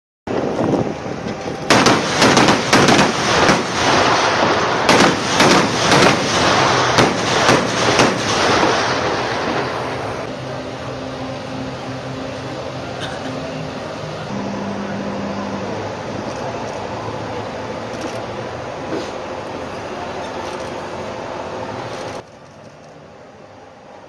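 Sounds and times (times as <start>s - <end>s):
vehicle rumble: 0.3s - 24.0s
gunshots: 1.7s - 10.3s.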